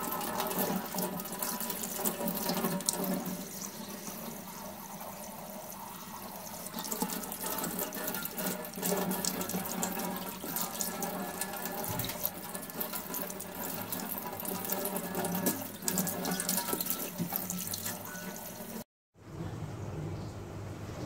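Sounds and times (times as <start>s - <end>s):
tap water splashing in sink: 0.0s - 4.4s, 6.5s - 18.7s.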